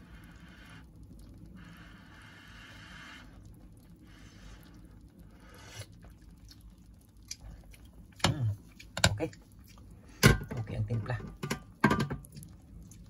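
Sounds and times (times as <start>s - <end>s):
broth simmering hiss: 0.0s - 13.0s.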